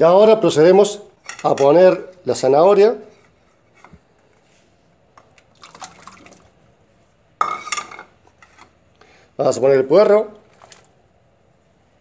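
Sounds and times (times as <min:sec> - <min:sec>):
carrots splashing into water: 0:05.3 - 0:06.5.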